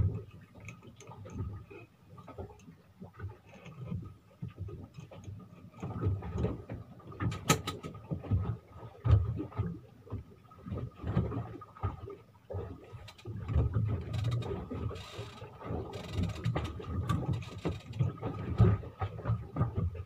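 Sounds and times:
water knocking against hull: 2.4 - 20.0
sharp click: 7.3 - 7.9.

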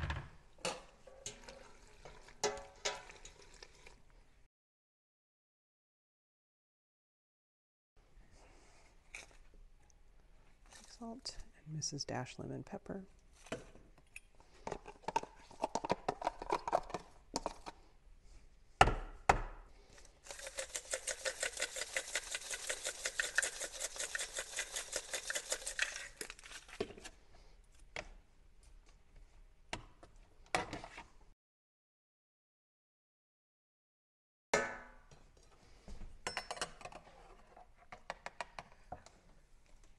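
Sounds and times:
seasoning shaker rattling: 20.2 - 26.4.

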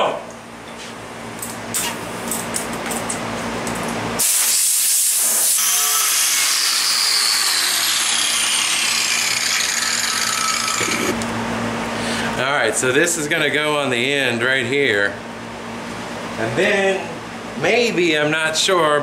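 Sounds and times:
angle grinder cutting steel: 5.0 - 11.2.

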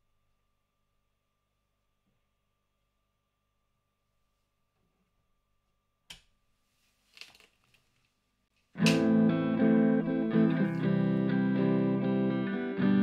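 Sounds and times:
click: 8.8 - 9.0
overdriven electric guitar strumming: 8.8 - 13.0.

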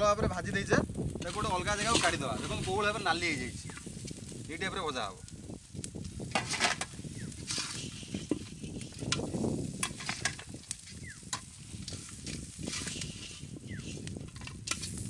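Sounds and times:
crabs sizzling in oil: 0.0 - 15.0
spatula scraping metal pan: 1.2 - 3.3, 6.3 - 15.0.

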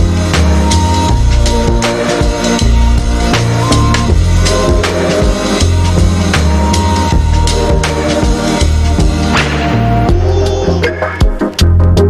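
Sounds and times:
drum hits: 0.0 - 9.8
sustained synth tones: 0.0 - 10.2
bass line: 0.0 - 12.0.

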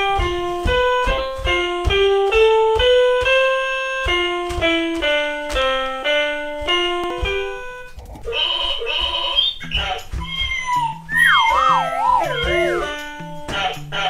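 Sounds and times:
soft thuds of steps: 0.0 - 3.4
electronic piano notes: 0.0 - 9.6, 11.1 - 13.2.

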